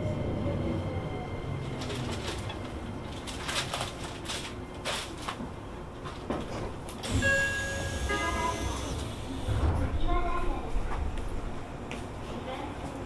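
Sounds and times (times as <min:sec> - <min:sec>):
air-conditioning noise: 0:01.6 - 0:13.0
train door chime: 0:07.1 - 0:09.0.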